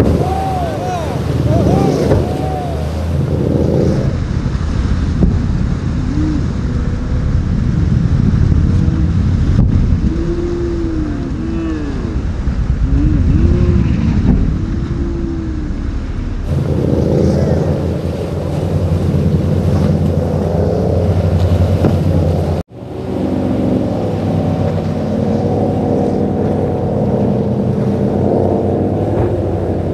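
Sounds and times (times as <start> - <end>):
speedboat engines running hard: 0.0 - 29.9.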